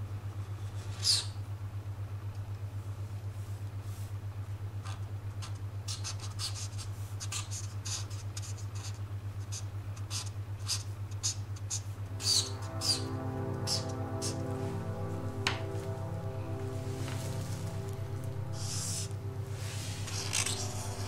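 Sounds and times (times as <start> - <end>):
marker scratching on paper: 5.4 - 13.0
pulsing low hum: 10.5 - 21.0.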